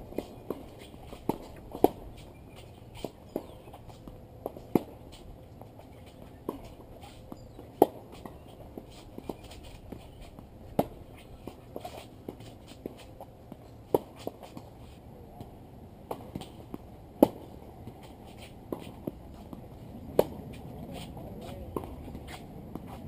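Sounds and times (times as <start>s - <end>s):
tennis ball struck by rackets: 0.1s - 2.2s, 4.4s - 5.1s, 6.0s - 14.7s, 16.1s - 19.5s, 20.1s - 23.0s
shoes scuffing on court: 0.1s - 15.0s, 16.1s - 23.0s.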